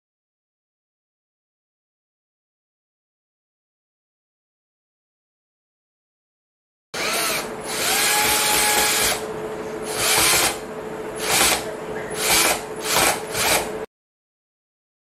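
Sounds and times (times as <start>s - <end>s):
cordless drill driving screw: 7.0s - 9.2s, 9.8s - 10.6s, 11.2s - 11.6s, 12.2s - 13.7s.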